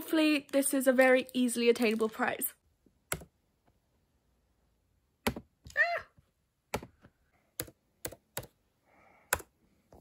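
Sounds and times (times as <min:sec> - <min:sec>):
keyboard and mouse clicks: 0:03.0 - 0:03.4, 0:06.7 - 0:08.6, 0:09.3 - 0:10.0.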